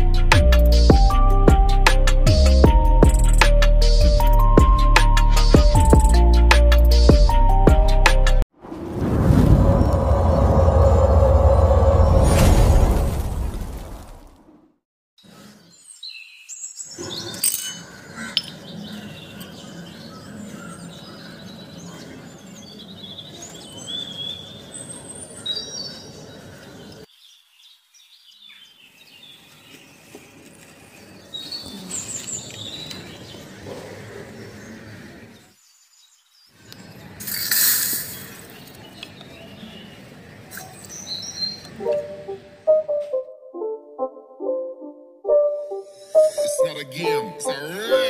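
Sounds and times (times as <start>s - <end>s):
outdoor background noise: 8.5s - 43.2s
birds chirping and calling: 15.2s - 27.0s, 28.2s - 37.2s, 38.2s - 42.1s.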